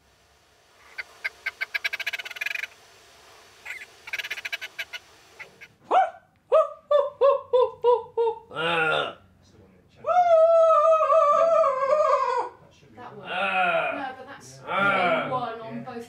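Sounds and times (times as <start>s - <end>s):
human voice imitating grouse call: 6.9s - 9.2s, 13.2s - 14.0s.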